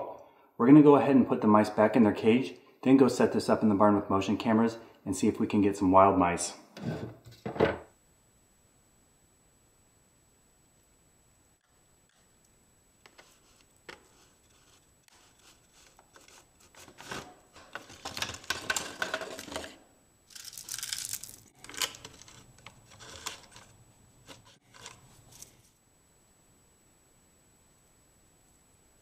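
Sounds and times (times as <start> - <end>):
small clicks and scratches: 12.0 - 19.7, 20.3 - 25.7.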